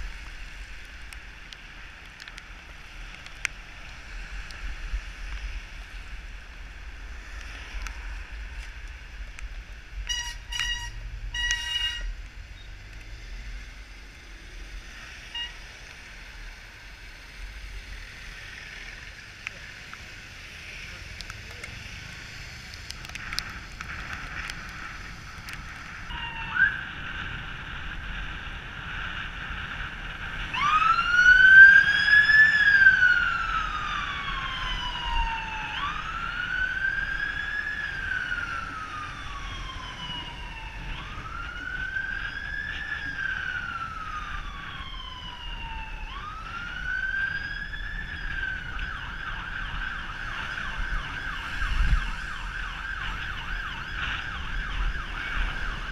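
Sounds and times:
wind: 0.0s - 55.9s
ambulance siren wailing: 26.0s - 27.0s, 30.3s - 55.9s
siren yelp: 26.1s - 27.0s, 30.5s - 55.9s.

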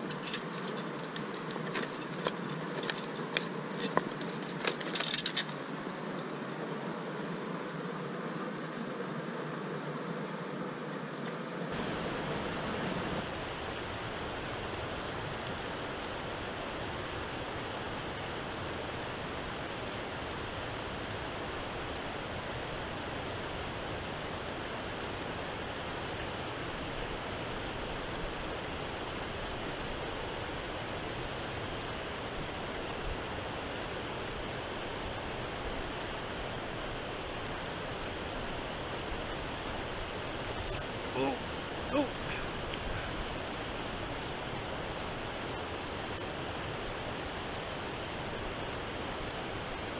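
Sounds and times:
river rushing over rocks: 11.7s - 16.9s.

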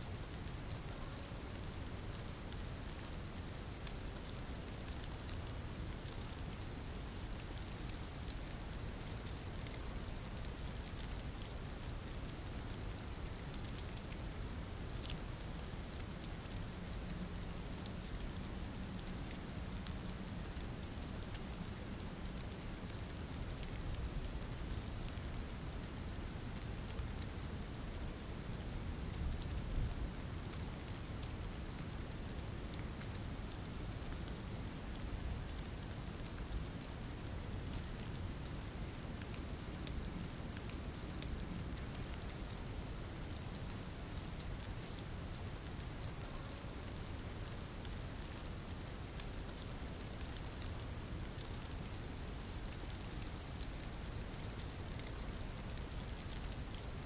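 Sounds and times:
steady rain falling: 0.0s - 57.0s.

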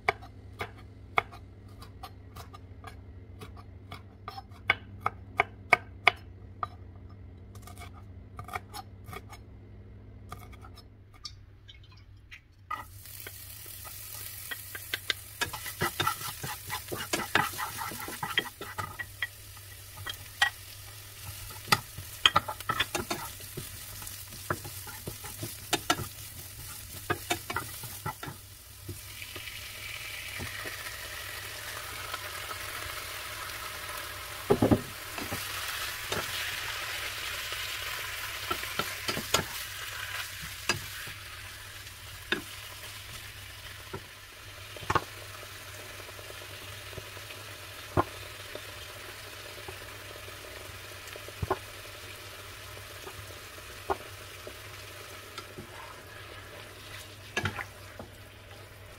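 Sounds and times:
onion and garlic sizzling in pan: 12.7s - 58.9s
wooden spatula scraping pan: 15.5s - 19.0s.

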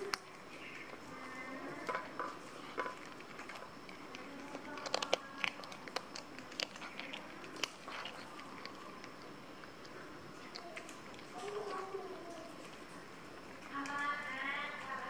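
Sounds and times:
cat crunching fish bones: 0.0s - 15.0s.

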